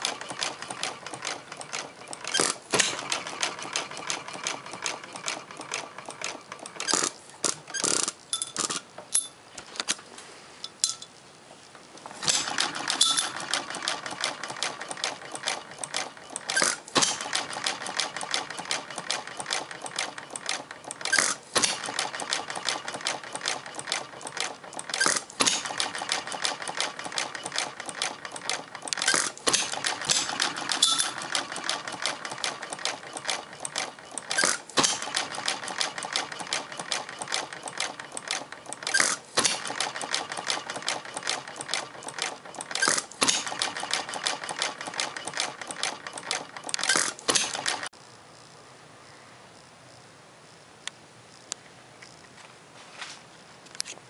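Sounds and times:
engine rapid clicking: 0:00.0 - 0:07.0, 0:12.2 - 0:47.9.

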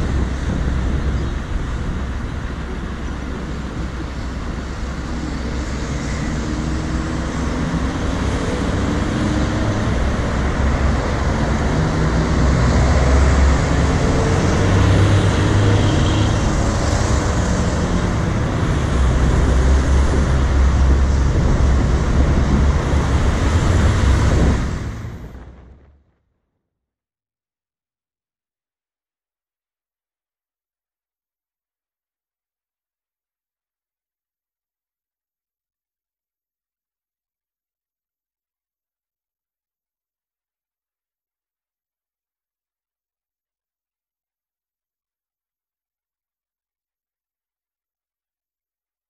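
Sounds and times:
cars passing: 0:00.0 - 0:25.9
heavy low traffic rumble: 0:00.0 - 0:26.2.

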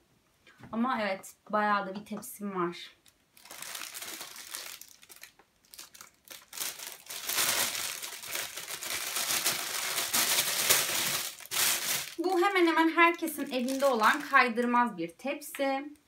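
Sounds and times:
plastic bag crinkling: 0:03.0 - 0:14.7.

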